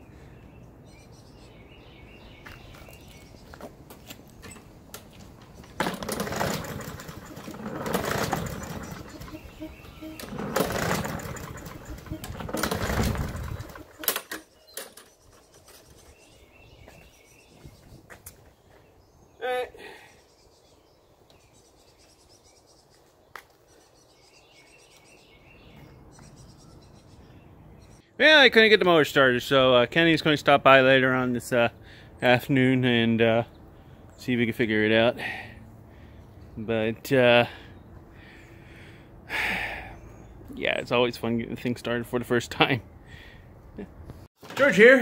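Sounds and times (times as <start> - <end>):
small motor running unevenly: 6.1 - 14.0
bird warbling trill: 8.2 - 16.5
high bird chirps: 8.6 - 10.5.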